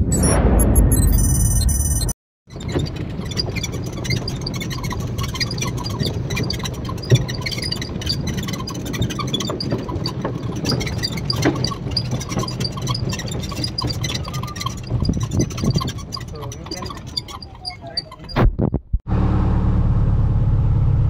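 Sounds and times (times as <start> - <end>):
small rattles and clicks: 2.5 - 18.4
electric buggy rumble: 19.1 - 21.0.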